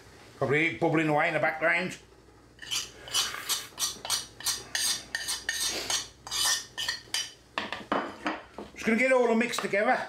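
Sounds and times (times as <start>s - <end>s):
metal spoon scraping and clinking: 2.6s - 7.3s.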